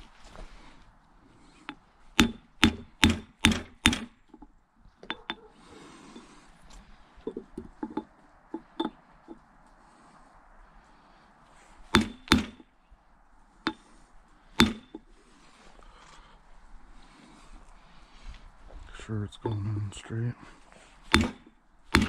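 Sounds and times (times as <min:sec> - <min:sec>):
hammer tapping on metal: 0:01.7 - 0:05.5, 0:11.9 - 0:12.6, 0:14.6 - 0:15.0.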